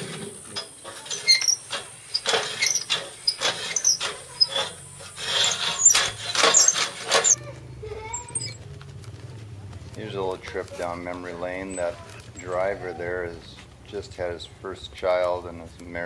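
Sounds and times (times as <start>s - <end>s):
metal steering linkage squeaking: 0.5s - 7.4s, 8.0s - 8.6s.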